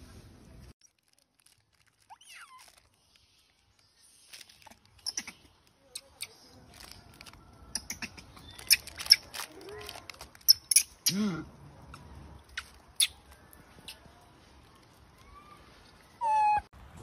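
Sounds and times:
plastic bag crinkling: 0.8s - 5.0s, 5.6s - 7.6s, 8.4s - 10.5s.

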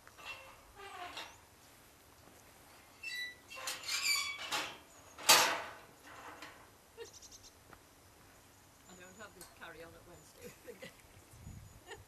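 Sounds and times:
gate hinges squeaking: 0.2s - 1.4s, 2.9s - 6.6s
loud metal gate clank: 3.2s - 6.7s.

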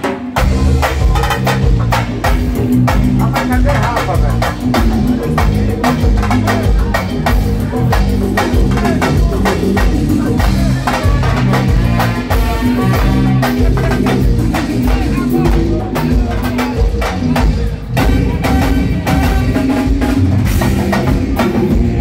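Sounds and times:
bass guitar: 0.0s - 22.0s
drum kit: 0.0s - 22.0s
keyboard: 0.0s - 22.0s.

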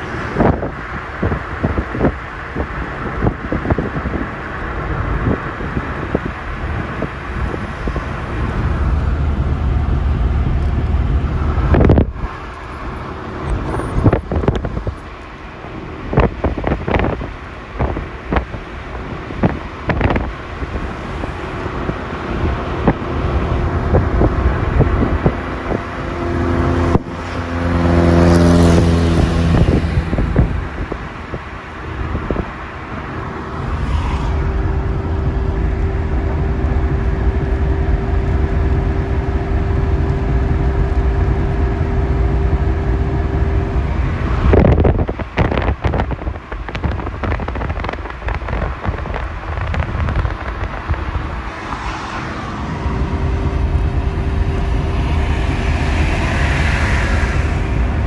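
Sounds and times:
road noise low rumble: 0.0s - 58.0s
wind flapping on microphone: 0.0s - 58.0s
vehicle passing close by: 19.1s - 47.9s, 48.5s - 58.0s.

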